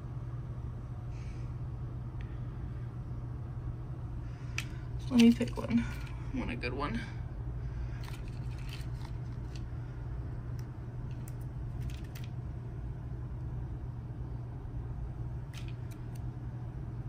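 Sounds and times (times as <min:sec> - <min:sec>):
steady low hum: 0:00.0 - 0:17.0
film frames rustling and clicking: 0:04.5 - 0:06.2, 0:07.9 - 0:09.8, 0:10.6 - 0:12.4, 0:15.5 - 0:16.3.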